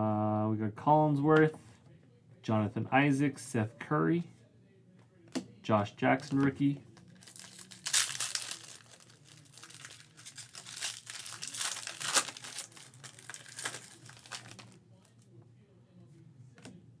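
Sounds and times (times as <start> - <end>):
foil wrapper crinkling and ripping: 7.0 - 14.8.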